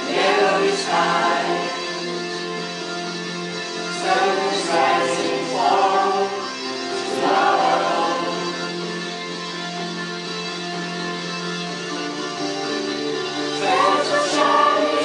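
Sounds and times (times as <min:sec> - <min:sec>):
choir singing: 0:00.0 - 0:09.6, 0:13.4 - 0:15.0
held chords: 0:00.0 - 0:15.0.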